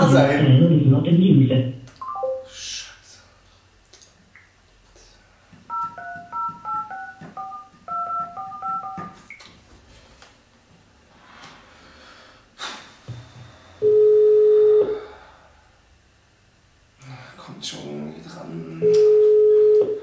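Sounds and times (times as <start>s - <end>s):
telephone ringback tone: 2.0s - 2.5s, 5.7s - 9.2s, 19.1s - 20.0s
touch-tone keypad beeps: 2.0s - 2.5s, 5.7s - 9.2s
telephone line click: 5.7s - 9.3s.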